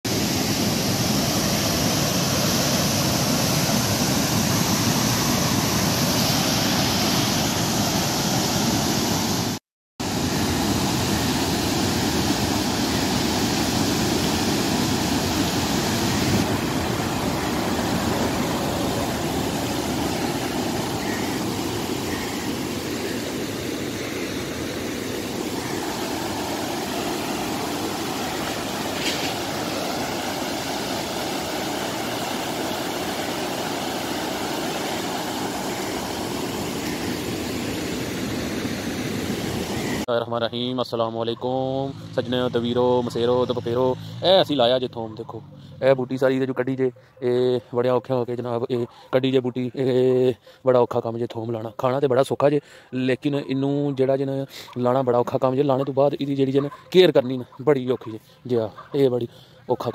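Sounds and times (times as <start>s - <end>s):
rushing whitewater: 0.1s - 40.1s.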